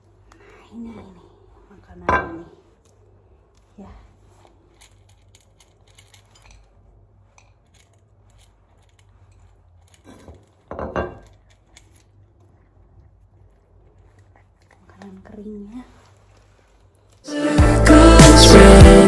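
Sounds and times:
ceramic dishes clattering on floor: 2.1 - 2.5, 10.1 - 11.4
cat eating from metal bowl: 4.1 - 15.2.

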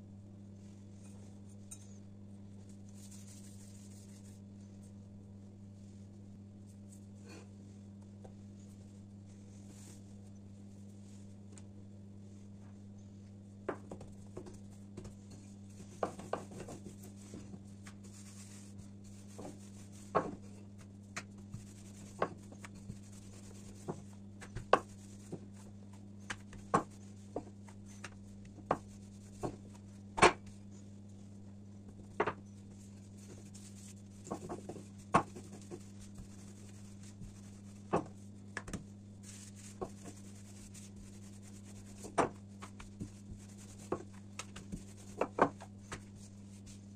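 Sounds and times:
steady low hum: 0.0 - 46.9
hands tapping dough on countertop: 13.6 - 15.2, 15.9 - 18.0, 19.3 - 25.6, 26.2 - 30.5, 34.2 - 38.9.

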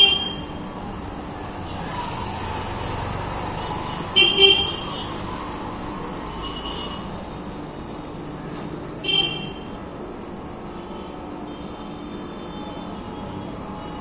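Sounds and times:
vehicle horn toots: 0.0 - 0.5, 9.0 - 9.7
traffic hum: 0.0 - 14.0.

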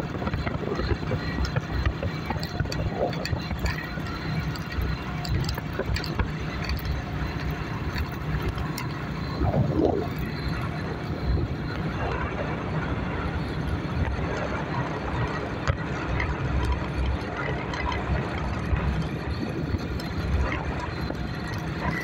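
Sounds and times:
bike rumbling on rough road: 0.0 - 22.0
wind buffeting microphone: 0.0 - 22.0
short clicks and rattles: 0.4 - 9.4.

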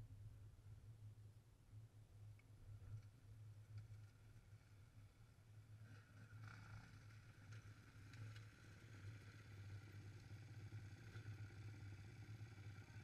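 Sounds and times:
dirt bike engines humming: 6.1 - 13.0.

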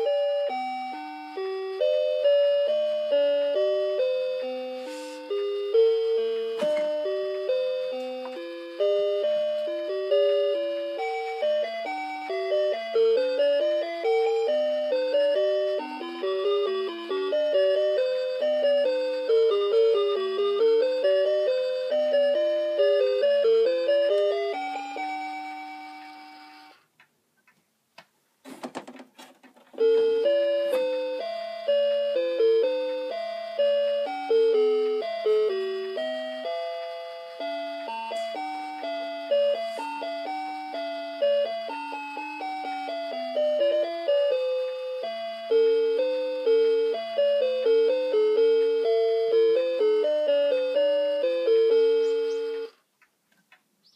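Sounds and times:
clock playing electronic melody: 0.0 - 26.8, 29.8 - 52.8.

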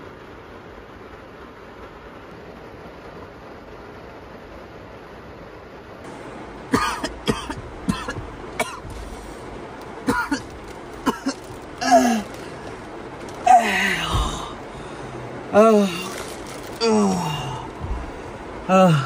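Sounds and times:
steady rain hiss: 0.0 - 19.0
man coughing: 6.7 - 9.0, 10.1 - 12.4.

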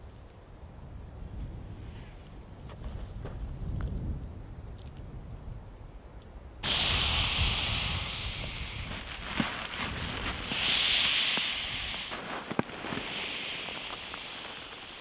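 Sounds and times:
wind rumble on microphone: 0.0 - 15.0
air hissing from pump sack: 6.6 - 15.0.

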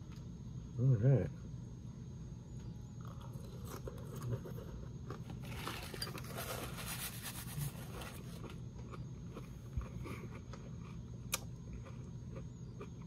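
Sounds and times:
crunchy cereal being chewed: 3.0 - 13.0
paper napkin rustling: 5.4 - 8.4.

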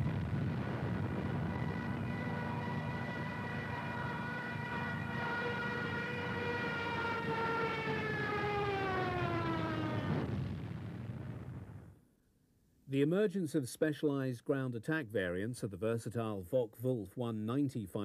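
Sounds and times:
low aircraft rumble: 0.0 - 11.9
dive siren high tone: 0.6 - 10.8.

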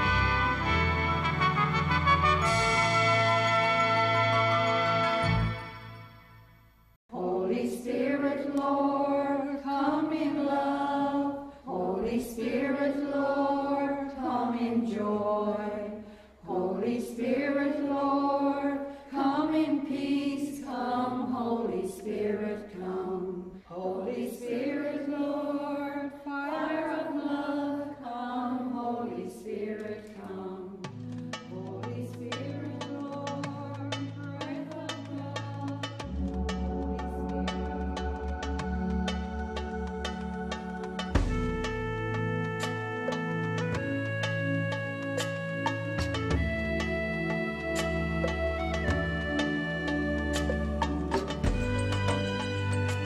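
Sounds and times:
held brass chord: 0.0 - 6.2, 40.6 - 53.0
unaccompanied vocal chant: 7.1 - 30.8.

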